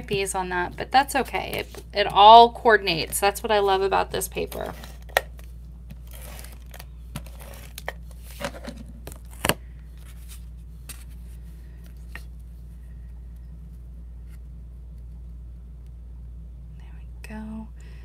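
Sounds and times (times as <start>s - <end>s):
paper cards rustling and tapping: 0.0s - 12.5s
steady low hum: 0.0s - 18.0s.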